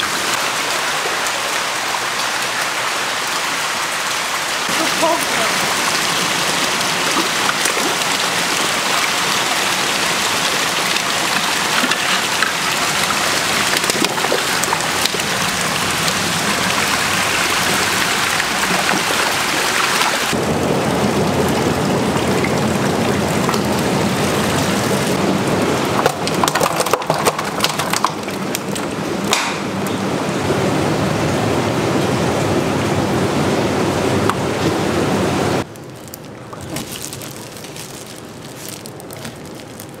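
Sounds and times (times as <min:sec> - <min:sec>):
water pouring from a pipe: 0:04.7 - 0:20.5, 0:21.1 - 0:29.0, 0:35.6 - 0:40.0
water stirred in a tank: 0:25.9 - 0:28.9.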